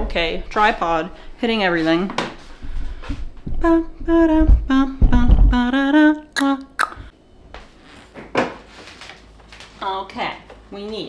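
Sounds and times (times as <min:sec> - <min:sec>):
low thuds: 0:02.6 - 0:06.1
woman humming: 0:03.5 - 0:07.1.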